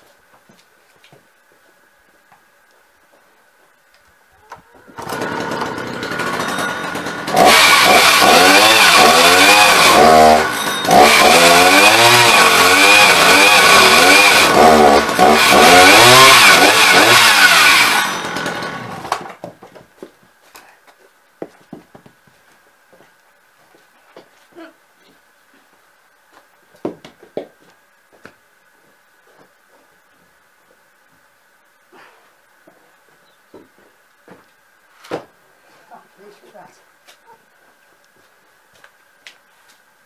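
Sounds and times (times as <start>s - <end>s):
chainsaw cutting a log: 5.0s - 19.4s.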